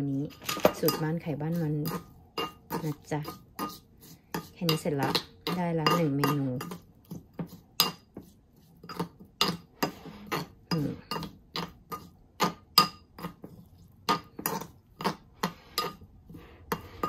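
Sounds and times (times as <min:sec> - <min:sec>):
metal spoon clinking ceramic bowl: 0:00.3 - 0:01.2, 0:01.8 - 0:06.8, 0:08.9 - 0:13.4.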